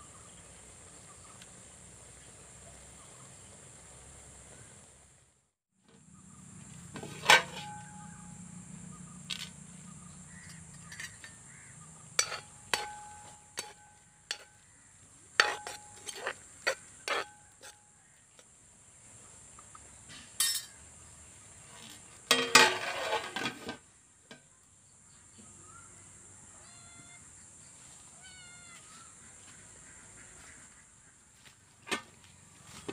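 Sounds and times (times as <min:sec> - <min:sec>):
metal ladle scraping a pot: 0:06.9 - 0:08.2, 0:10.5 - 0:11.5, 0:12.1 - 0:14.6, 0:15.4 - 0:17.8, 0:22.3 - 0:23.8
metal pot rattling clatter: 0:07.0 - 0:07.9, 0:12.2 - 0:14.5, 0:22.3 - 0:23.8.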